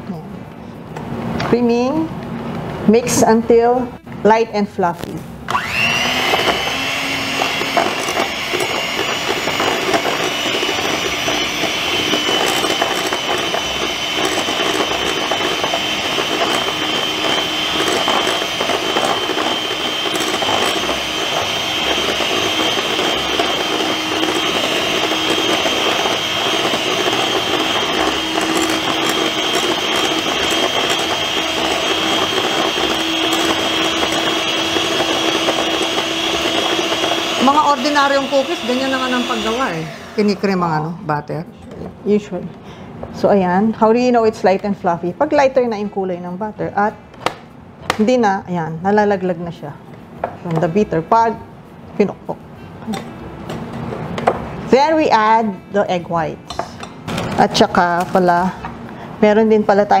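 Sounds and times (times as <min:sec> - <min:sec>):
electric hand mixer whining: 0:05.5 - 0:40.6.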